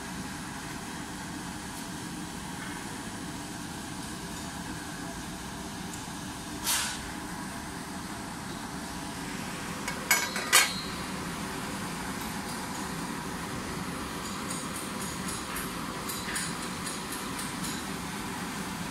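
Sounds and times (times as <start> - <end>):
heat tunnel humming: 0.0 - 18.9
brief hiss: 6.6 - 7.0.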